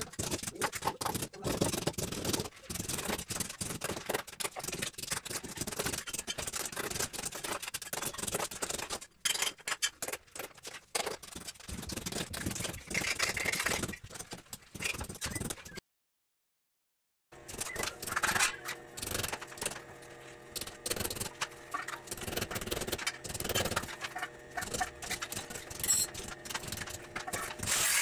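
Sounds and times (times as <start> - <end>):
tools scraping and clattering on metal: 17.5 - 28.0.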